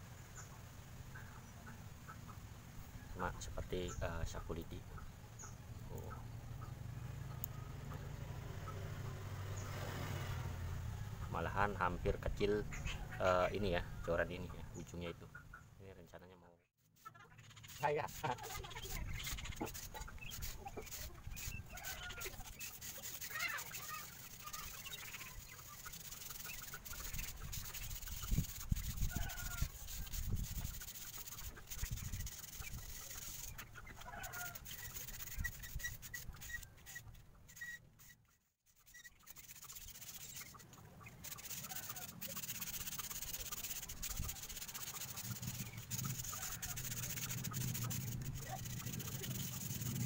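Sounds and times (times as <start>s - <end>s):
chickens clucking: 0.4s - 2.5s, 3.2s - 9.2s, 11.1s - 16.3s, 16.9s - 50.0s
sandpaper rubbing rod tip: 16.8s - 50.0s.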